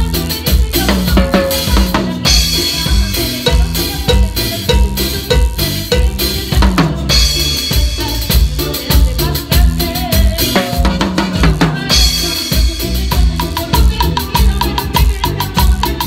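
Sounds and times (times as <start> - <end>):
drum kit playing: 0.0 - 16.0
latin dance band: 0.0 - 16.0.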